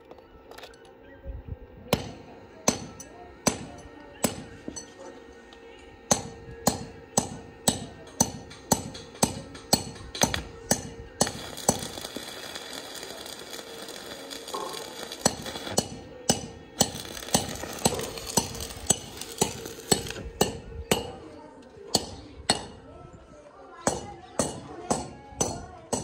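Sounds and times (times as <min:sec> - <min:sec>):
hammer striking metal: 0:06.1 - 0:12.8, 0:14.6 - 0:21.2, 0:21.9 - 0:22.8, 0:23.9 - 0:26.0.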